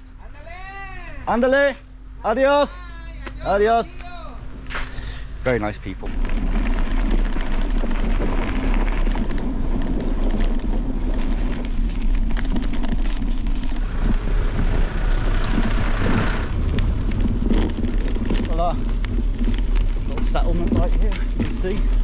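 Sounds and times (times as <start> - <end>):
wind buffeting microphone: 5.3 - 22.0
bicycle knocks and rattles: 5.8 - 22.0.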